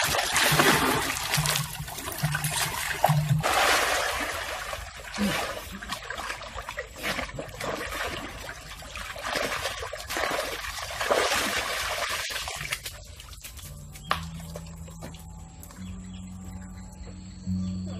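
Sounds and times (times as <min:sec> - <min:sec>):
water trickling and splashing: 0:00.0 - 0:17.2.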